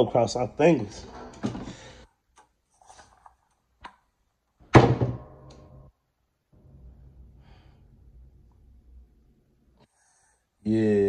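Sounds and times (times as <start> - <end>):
loud metal clunk: 4.7 - 5.9.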